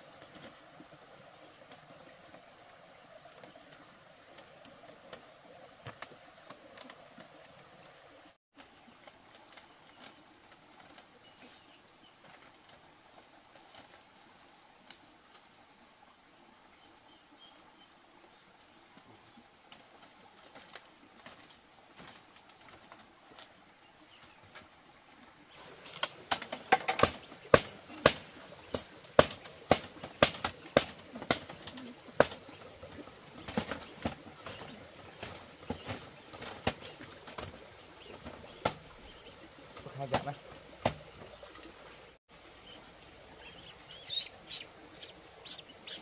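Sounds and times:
distant birds calling: 25.4 - 46.0.

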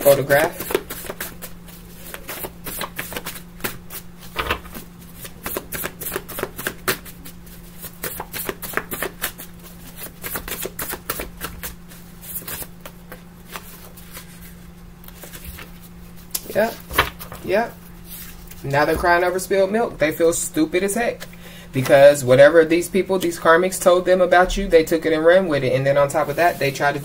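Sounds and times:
cards being shuffled: 0.0 - 19.1.

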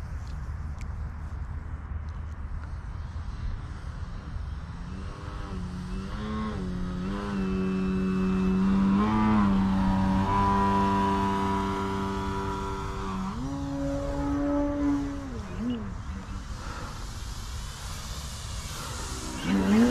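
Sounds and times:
model plane propeller buzz: 2.6 - 19.9.

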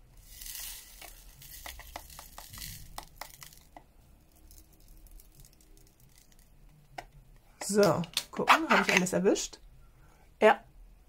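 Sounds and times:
beads poured into plastic tray: 0.1 - 6.5
small clicks of stones and trays: 0.5 - 3.8.

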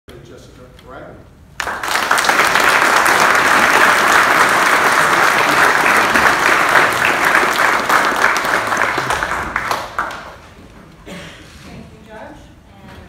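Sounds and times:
audience applauding: 1.6 - 10.6.

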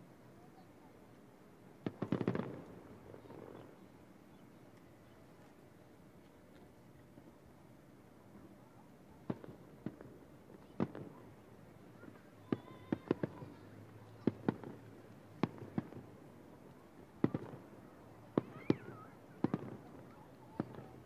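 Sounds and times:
distant fireworks bangs: 1.8 - 3.8, 9.2 - 11.4, 12.0 - 16.4, 17.2 - 21.0.

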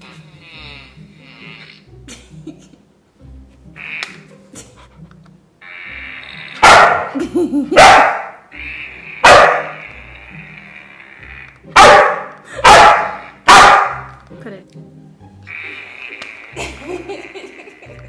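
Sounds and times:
background music: 0.0 - 18.0
dog barking loudly: 6.6 - 8.4, 9.2 - 9.8, 11.8 - 14.1.

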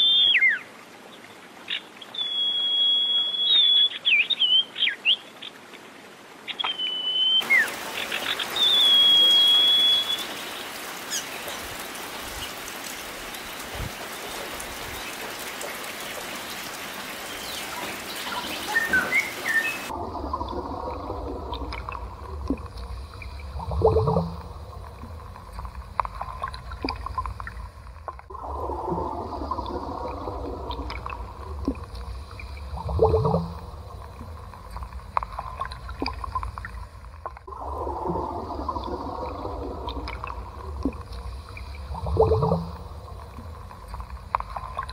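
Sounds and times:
bird whistled call: 0.0 - 0.7, 2.1 - 5.2, 6.6 - 7.7, 8.6 - 10.4, 18.3 - 19.9
steady outdoor hiss: 0.0 - 44.9
gurgling bubbles: 17.3 - 44.9
underwater low rumble: 19.9 - 44.9.

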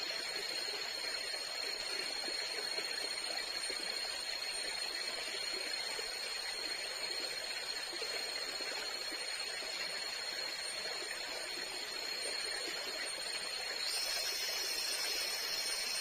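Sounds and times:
high thin insect whine: 4.7 - 16.0.

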